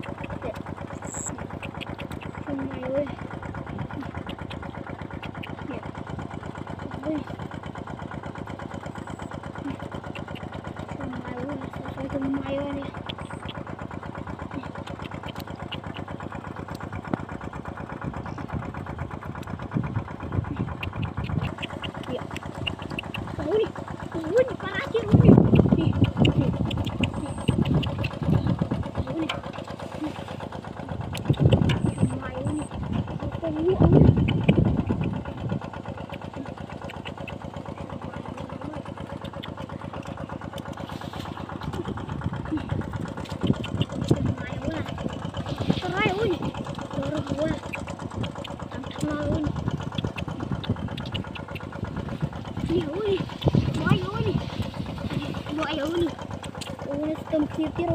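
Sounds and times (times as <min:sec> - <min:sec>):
water pump engine running: 0:00.0 - 0:57.9.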